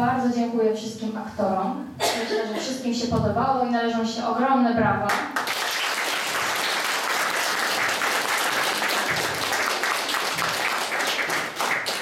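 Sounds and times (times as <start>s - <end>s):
audience applauding: 5.4s - 12.0s.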